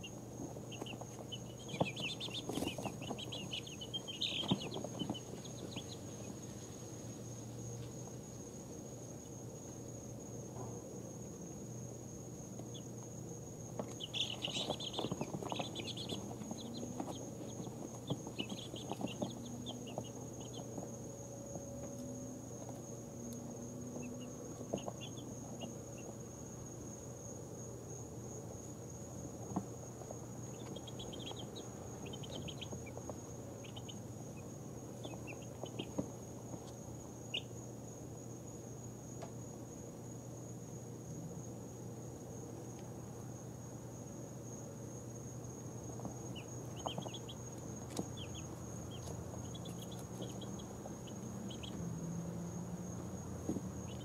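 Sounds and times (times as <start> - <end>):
chicks peeping softly: 0.0 - 10.5, 12.4 - 27.1, 27.9 - 37.7, 45.4 - 54.0.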